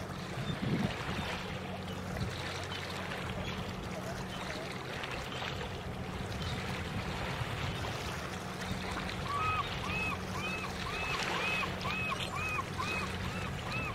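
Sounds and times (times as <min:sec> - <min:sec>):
distant boat engine drone: 0:00.0 - 0:13.9
bird calling: 0:08.6 - 0:13.9.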